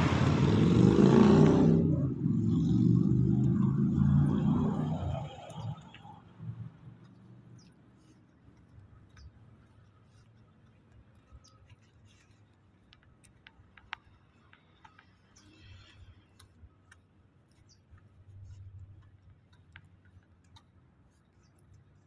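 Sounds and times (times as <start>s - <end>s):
faint low rumble: 0.0s - 11.6s
faint clicks and ticks: 2.4s - 22.0s.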